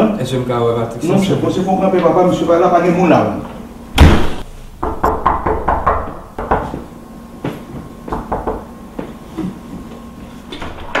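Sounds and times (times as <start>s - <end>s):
knuckles knocking on door: 4.8s - 6.9s, 8.1s - 8.7s.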